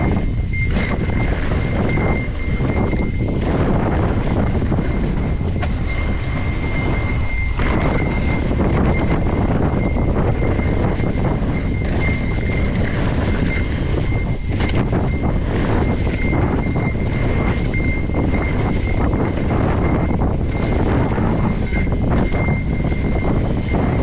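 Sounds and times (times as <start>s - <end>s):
bike chain and parts rattling: 0.0s - 24.0s
bike tyres rumbling on gravel: 0.0s - 24.0s.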